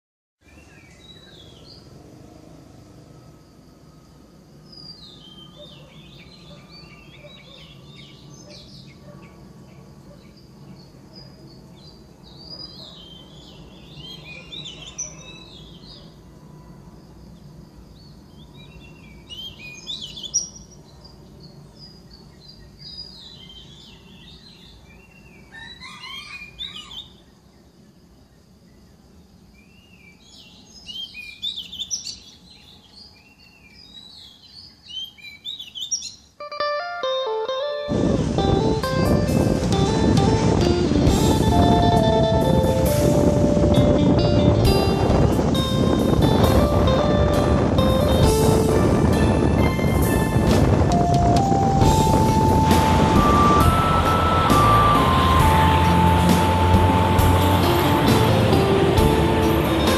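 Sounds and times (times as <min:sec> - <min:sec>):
birds chirping: 0:00.4 - 0:02.0, 0:04.6 - 0:16.2, 0:17.4 - 0:27.7, 0:29.4 - 0:59.9.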